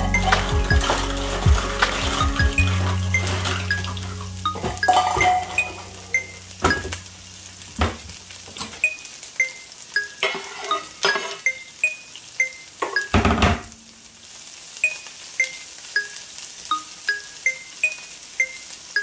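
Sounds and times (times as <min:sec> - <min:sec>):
chiming background music: 0:00.0 - 0:06.9.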